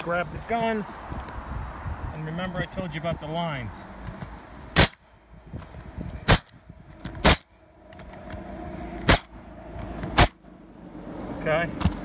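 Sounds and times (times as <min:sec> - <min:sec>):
nail gun shots: 0:04.8 - 0:05.0, 0:06.3 - 0:06.5, 0:07.2 - 0:07.5, 0:09.0 - 0:09.3, 0:10.2 - 0:10.4.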